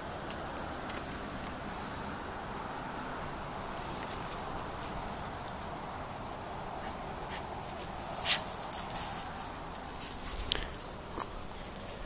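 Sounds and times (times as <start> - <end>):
footsteps crunching dry leaves: 7.0 - 12.0.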